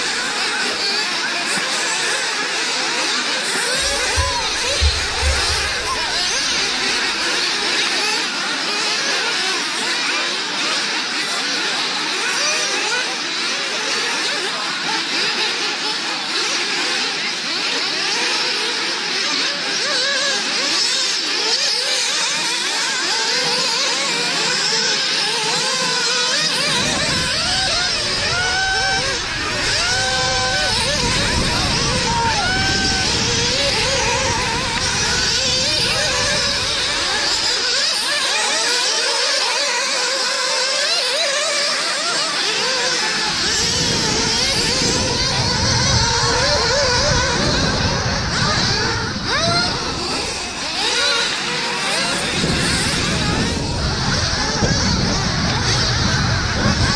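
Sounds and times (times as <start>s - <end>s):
small rc engines revving: 0.0s - 56.9s
low rumble: 3.8s - 7.4s.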